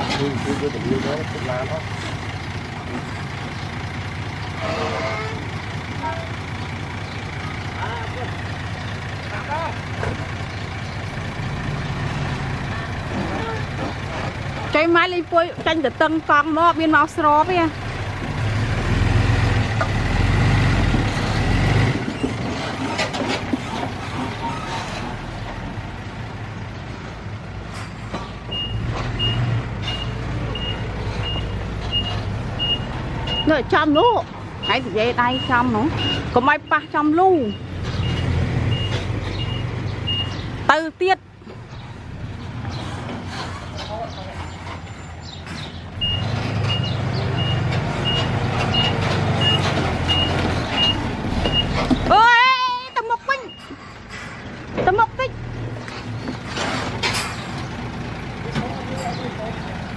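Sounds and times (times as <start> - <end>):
truck engine droning: 0.0 - 59.9
reversing alarm beeping: 28.5 - 40.4, 46.0 - 51.8, 52.7 - 53.9.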